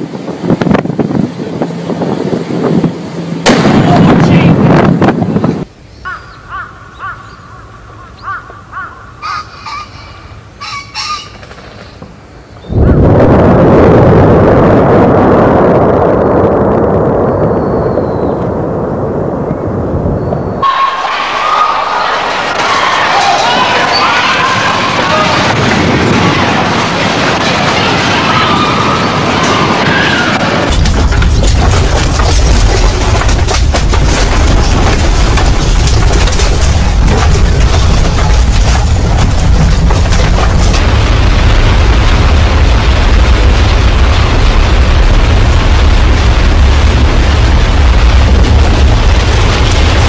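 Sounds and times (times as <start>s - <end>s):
volcanic eruption rumble: 0.0s - 5.7s, 12.0s - 50.0s
crow cawing: 6.0s - 11.4s.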